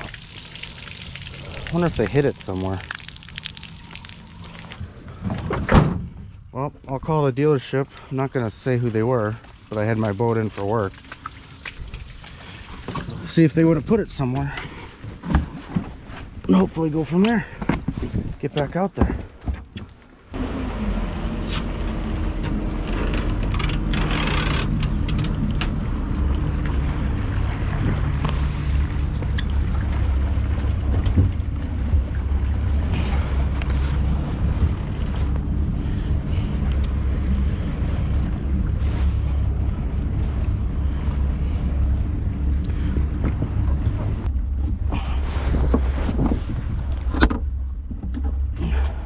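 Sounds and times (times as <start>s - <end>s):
boat motor humming: 0.0s - 6.9s, 19.6s - 49.0s
wind noise: 42.7s - 48.4s.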